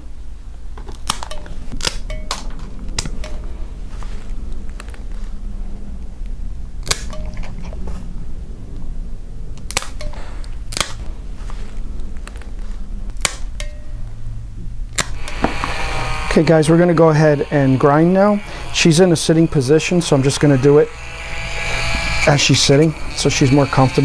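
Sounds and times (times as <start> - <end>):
nail clippers snapping: 0.9 - 3.4, 6.8 - 7.2, 9.6 - 11.0, 13.2 - 13.7, 15.0 - 16.0.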